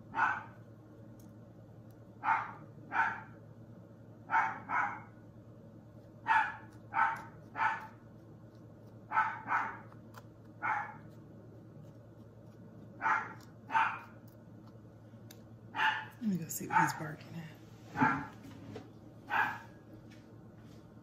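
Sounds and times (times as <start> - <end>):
dog barking: 0.1 - 0.6, 2.2 - 3.4, 4.3 - 5.1, 6.2 - 8.0, 9.1 - 10.0, 10.6 - 11.2, 13.0 - 14.2, 15.7 - 17.2, 17.9 - 18.4, 19.3 - 19.8.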